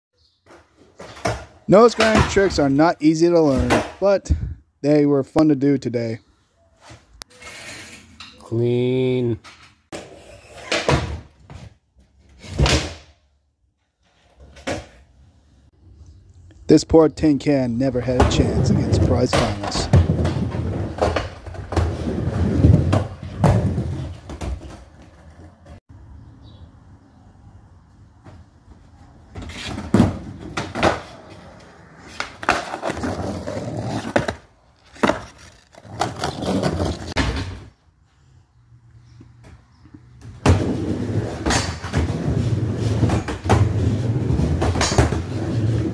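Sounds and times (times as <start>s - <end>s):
skateboard rolling: 18.0s - 25.8s, 28.3s - 37.7s, 40.2s - 45.9s
skateboard wheels impacts: 28.2s - 37.6s.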